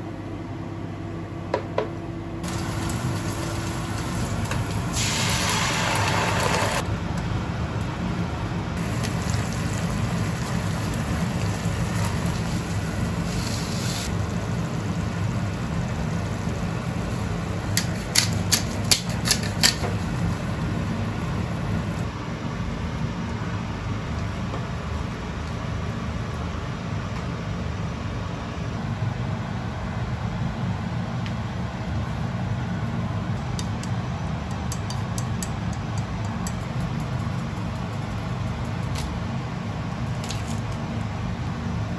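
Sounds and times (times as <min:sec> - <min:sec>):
fan hum: 0:00.0 - 0:41.9
sauce cooking in a frying pan: 0:02.4 - 0:06.8, 0:08.8 - 0:22.0.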